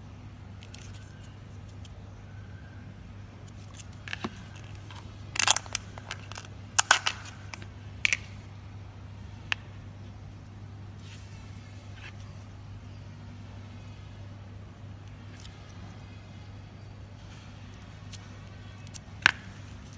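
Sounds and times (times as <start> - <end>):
low steady hum: 0.0 - 19.9
slime crunching and crackling: 3.5 - 7.5.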